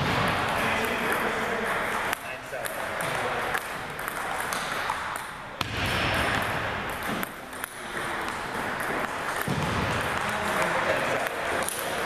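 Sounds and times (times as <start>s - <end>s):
table tennis ball clicks: 0.3s - 5.4s, 6.2s - 12.0s.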